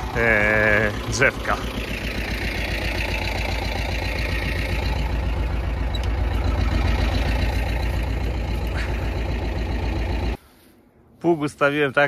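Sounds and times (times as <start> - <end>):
tractor diesel engine running: 0.0 - 10.4.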